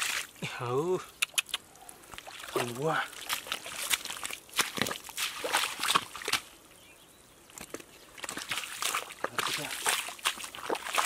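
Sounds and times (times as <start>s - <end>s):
wet mud squelching: 1.2s - 6.6s, 7.5s - 11.0s.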